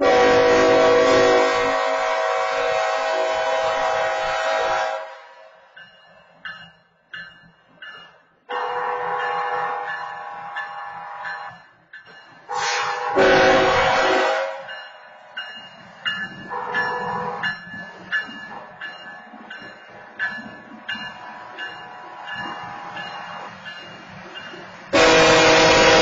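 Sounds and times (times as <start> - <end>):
train horn blasts: 0.0 - 5.6, 8.5 - 11.4, 12.5 - 14.8, 16.5 - 17.5, 24.9 - 26.0
diesel locomotive rumbling: 0.0 - 26.0
sharp crossing bell ticking: 5.7 - 12.5, 14.7 - 24.9.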